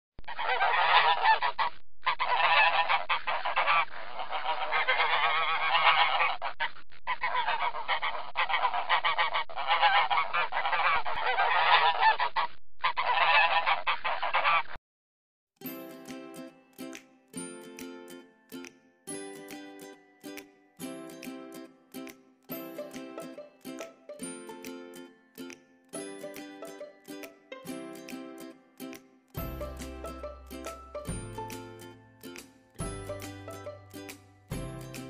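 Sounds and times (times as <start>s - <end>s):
geese honking and cackling: 0.3s - 14.8s
plucked-string music: 15.6s - 35.0s.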